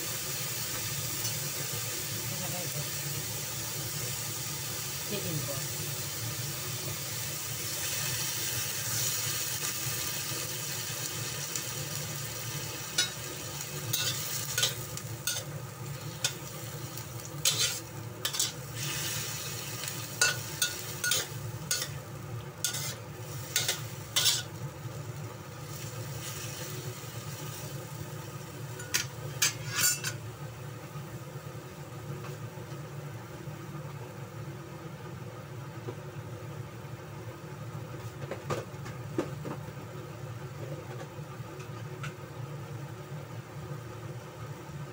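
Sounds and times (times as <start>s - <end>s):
food sizzling in oil: 0.0s - 30.8s
spatula scraping a wok: 13.8s - 15.5s, 17.4s - 22.0s, 22.6s - 24.6s, 28.8s - 30.2s.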